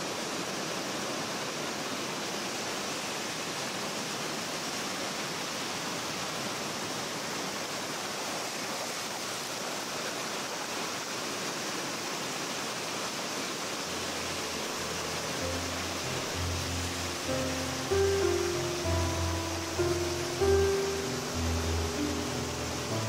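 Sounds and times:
low music notes: 0:14.3 - 0:23.0.

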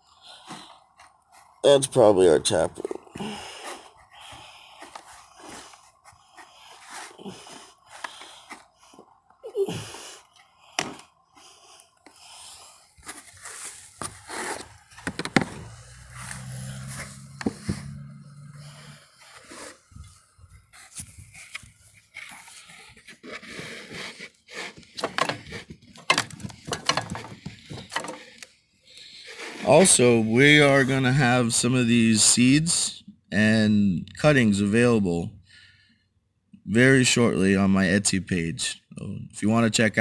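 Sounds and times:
low hum: 0:09.9 - 0:21.4.

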